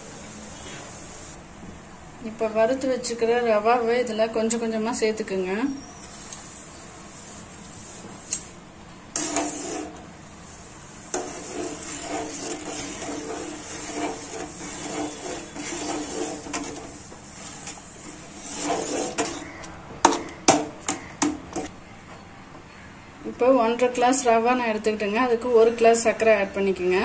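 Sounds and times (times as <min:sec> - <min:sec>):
ladle scraping steel pot: 0:09.2 - 0:21.7.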